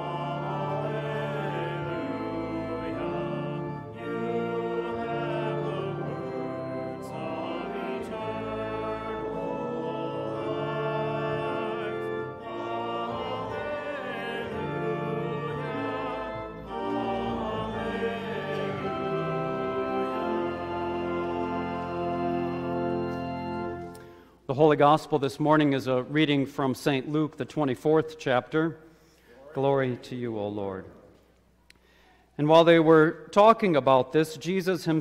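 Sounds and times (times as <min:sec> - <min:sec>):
congregation singing: 0:00.0 - 0:24.2
instrumental accompaniment: 0:00.0 - 0:24.3.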